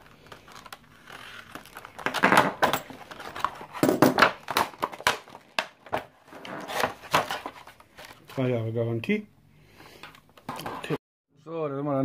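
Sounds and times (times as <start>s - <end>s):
plastic crinkling and crackling: 0.0s - 8.5s.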